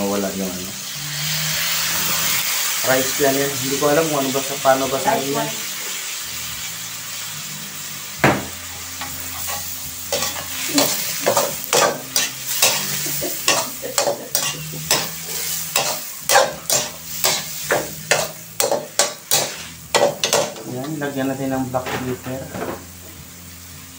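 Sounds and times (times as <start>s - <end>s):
food sizzling in a wok: 0.0s - 23.9s
metal spatula scraping a wok: 9.0s - 20.4s.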